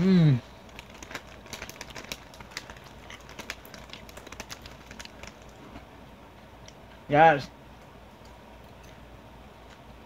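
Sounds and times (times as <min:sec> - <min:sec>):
chewing crunchy tortilla chips: 0:00.6 - 0:05.9.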